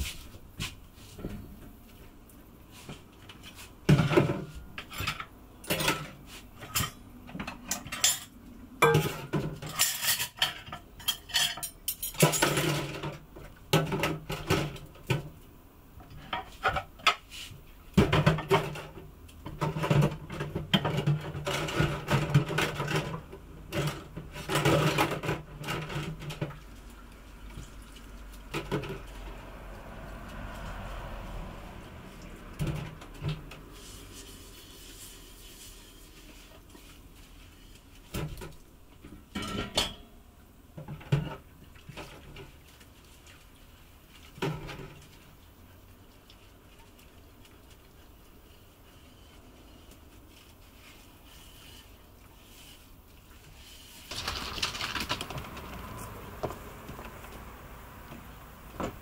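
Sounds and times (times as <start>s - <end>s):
dishes and cutlery clattering: 3.9s - 13.2s, 39.3s - 40.1s.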